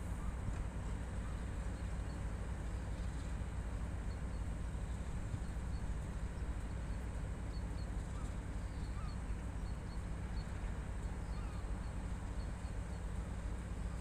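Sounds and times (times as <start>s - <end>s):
diesel locomotive engine rumbling: 0.0s - 14.0s
small birds chirping: 4.0s - 13.2s.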